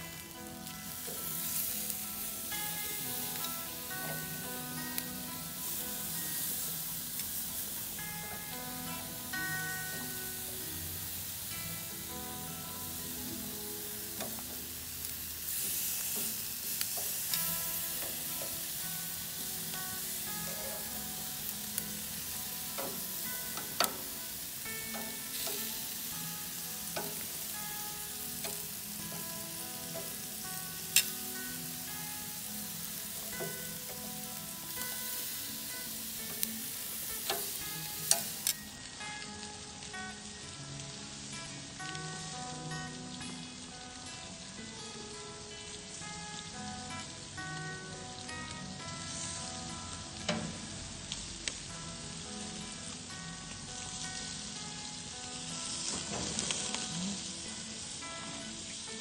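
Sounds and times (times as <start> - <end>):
chicken sizzling on a grill: 0.0 - 59.0
tongs clicking on grates: 14.1 - 38.6.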